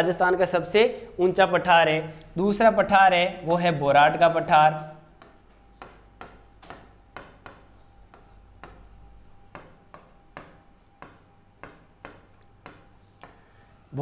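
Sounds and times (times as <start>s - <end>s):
pen tapping and scraping on board: 5.2s - 13.9s.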